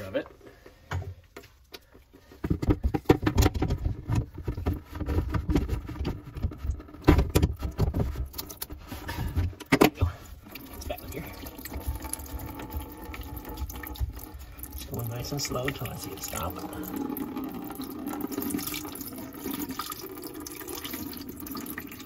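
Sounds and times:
knocks and rattles of handling: 0.2 - 10.0
water trickling into plastic bucket: 1.8 - 22.0.

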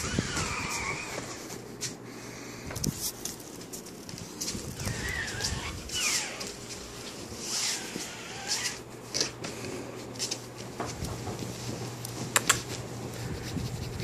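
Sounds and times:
sharp clicks: 12.4 - 12.6.

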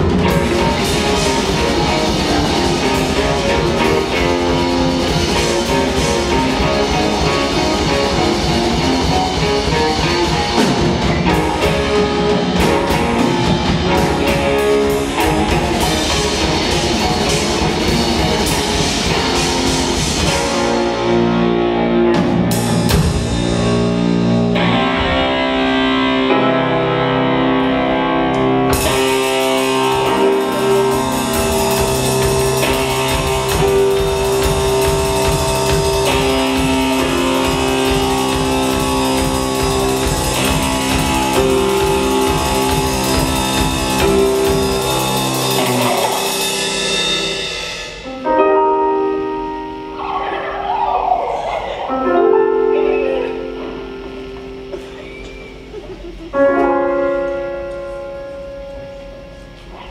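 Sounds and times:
drums and cymbals: 0.0 - 26.4, 28.7 - 48.6
live rock band playing: 0.0 - 59.9.

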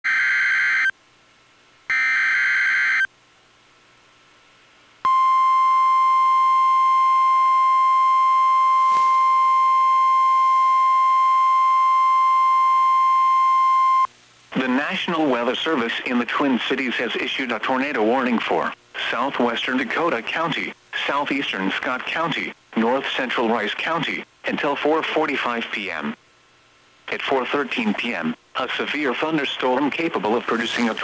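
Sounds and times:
steady warning alarm tone: 1.9 - 3.1.

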